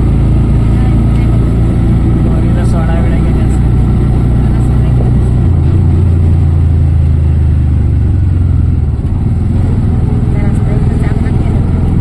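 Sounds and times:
auto-rickshaw engine running: 0.0 - 12.0.

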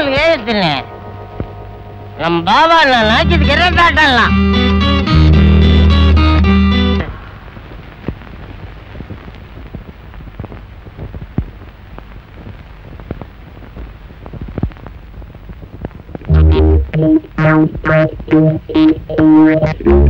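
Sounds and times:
film music: 2.9 - 7.4, 16.3 - 19.0
old film surface noise crackles: 7.4 - 16.3.

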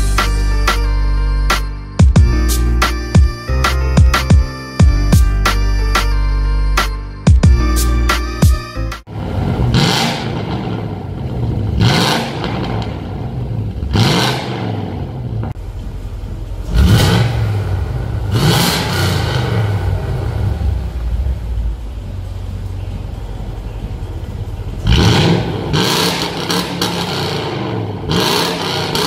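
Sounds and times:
car engine idling: 9.1 - 29.0
car engine revving: 9.1 - 29.0.

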